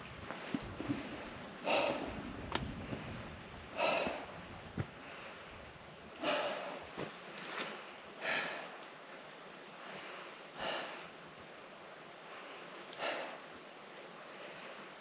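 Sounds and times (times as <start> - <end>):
person breathing hard: 0.8 - 5.6, 6.2 - 6.9, 8.1 - 8.9, 9.8 - 11.1, 12.2 - 13.5.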